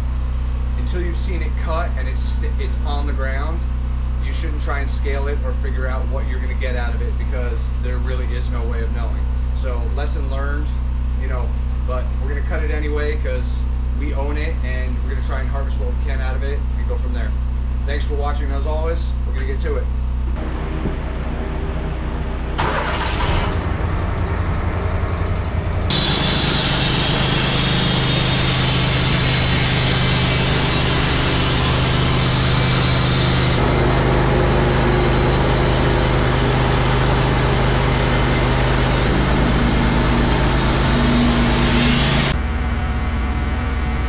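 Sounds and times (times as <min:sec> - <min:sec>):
sawmill engine running: 0:20.4 - 0:42.4
band saw blade cutting log: 0:25.9 - 0:42.4.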